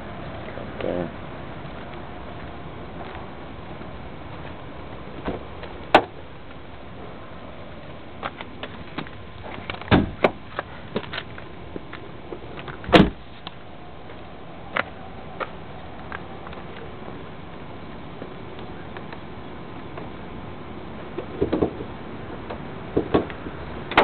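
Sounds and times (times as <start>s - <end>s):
car door shutting thud: 9.9s - 10.4s, 12.9s - 13.2s.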